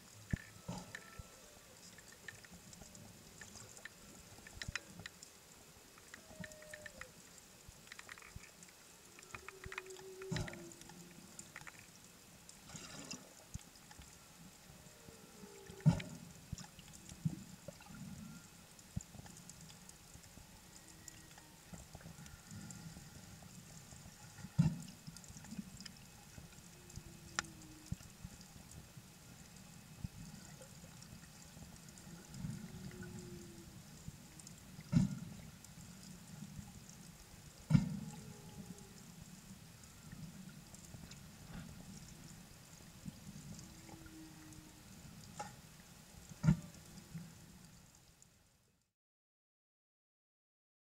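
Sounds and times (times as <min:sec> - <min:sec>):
underwater crackle and clicks: 0:00.0 - 0:48.6
whale song moans: 0:00.3 - 0:01.9, 0:06.0 - 0:07.2, 0:09.0 - 0:11.5, 0:14.6 - 0:16.4, 0:20.6 - 0:23.2, 0:26.5 - 0:28.2, 0:32.0 - 0:34.0, 0:37.9 - 0:39.2, 0:43.5 - 0:45.0.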